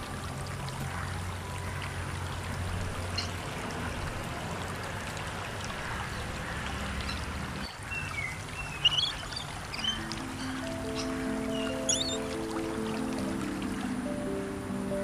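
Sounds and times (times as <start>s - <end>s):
low held music tone: 0.0s - 5.6s, 9.4s - 15.0s
running water: 0.0s - 15.0s.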